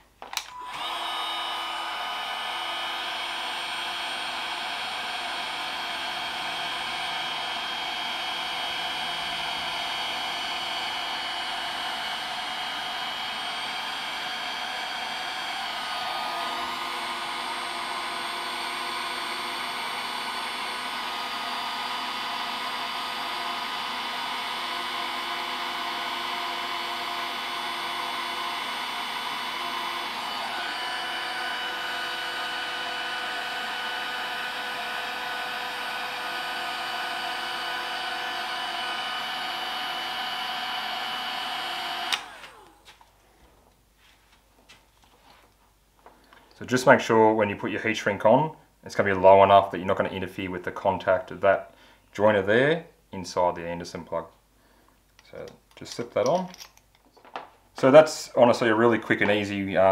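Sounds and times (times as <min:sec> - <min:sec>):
heat gun fan whining: 0:00.0 - 0:43.2.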